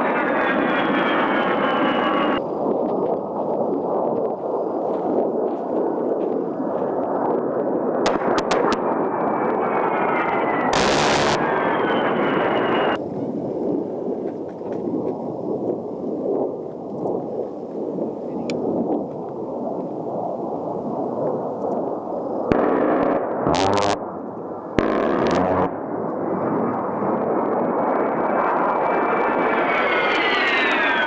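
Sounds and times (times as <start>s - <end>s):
jet engine whine: 0.0s - 31.0s
jet engines rumbling: 0.0s - 31.0s
harsh noise bursts: 10.7s - 11.6s, 23.5s - 24.0s, 24.8s - 25.7s.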